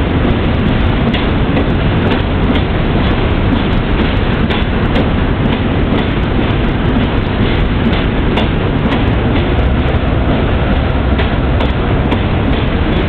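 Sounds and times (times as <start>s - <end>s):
rail clacks and clicks: 0.0s - 13.0s
train wheels rumbling on rail: 0.0s - 13.0s.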